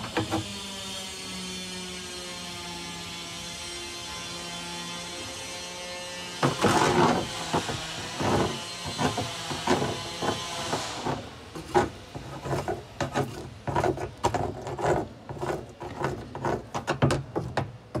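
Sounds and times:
metal tool scraping workpiece: 6.4s - 18.0s.

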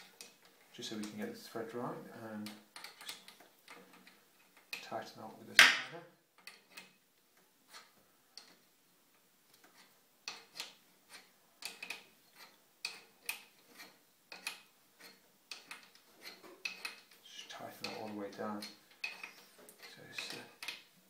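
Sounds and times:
spanner clicking on metal nut: 9.6s - 17.2s, 17.8s - 20.9s.

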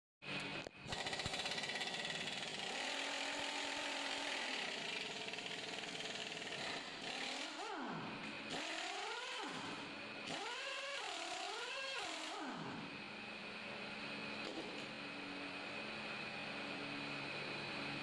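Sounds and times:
impact wrench rattling: 0.9s - 3.5s.

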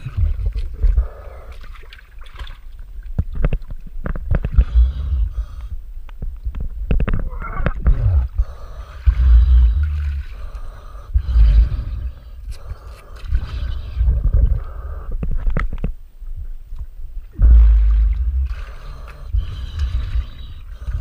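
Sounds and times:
low rumbles of water: 0.0s - 21.0s
water sloshing and gurgling: 0.0s - 21.0s
bubbling: 6.9s - 15.5s, 17.3s - 21.0s.

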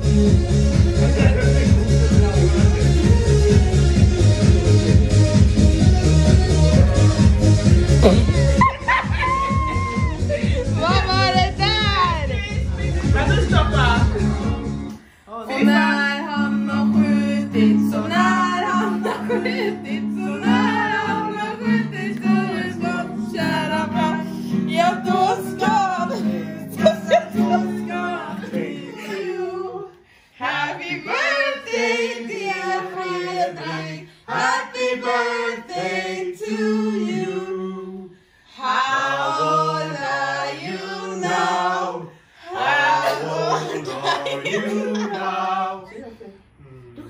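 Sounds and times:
woman singing unaccompanied: 15.3s - 38.0s.

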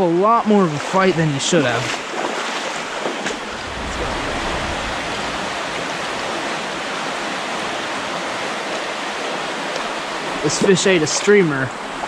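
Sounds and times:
creek water rushing over rocks: 0.0s - 12.0s
low rumble: 3.4s - 7.8s.

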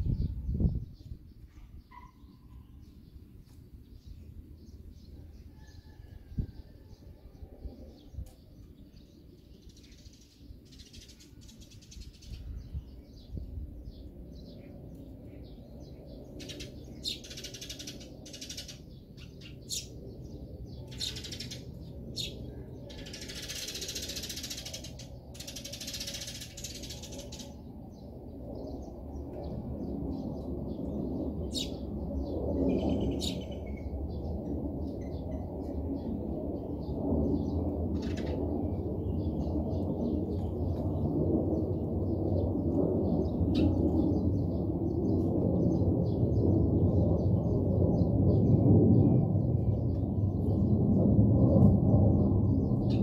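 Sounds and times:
birds chirping: 0.1s - 6.0s, 6.8s - 49.0s
wings fluttering: 22.9s - 27.6s.

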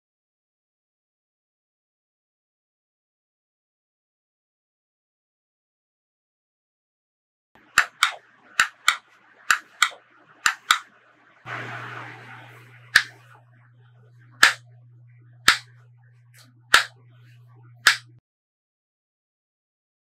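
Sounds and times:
low electrical hum: 7.6s - 18.2s
plastic switch clicks: 7.8s - 10.8s, 15.4s - 15.7s, 16.7s - 17.0s, 17.8s - 18.1s.

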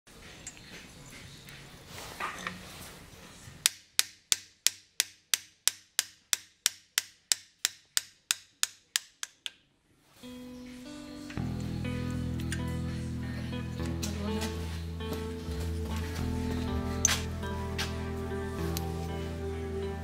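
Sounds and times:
hand hammer striking metal: 3.6s - 9.6s.

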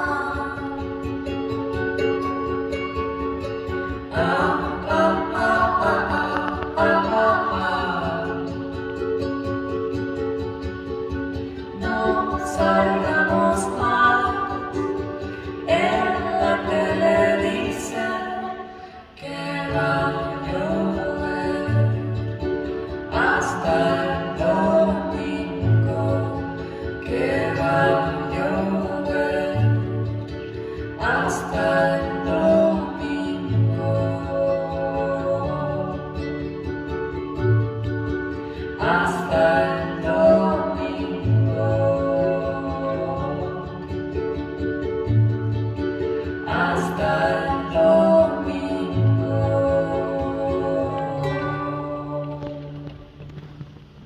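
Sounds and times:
woman singing: 0.0s - 53.3s
acoustic guitar: 0.0s - 54.0s
small strummed string instrument: 0.0s - 54.0s.

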